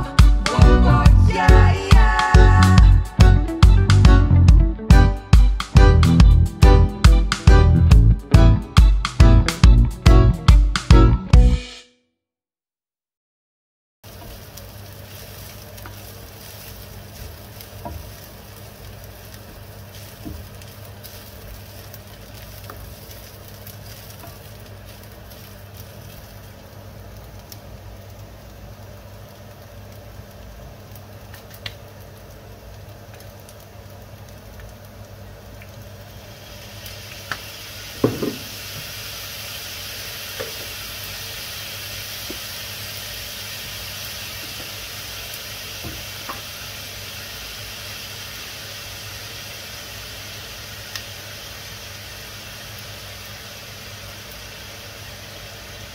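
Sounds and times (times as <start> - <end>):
food sizzling in oil: 14.0 - 55.9.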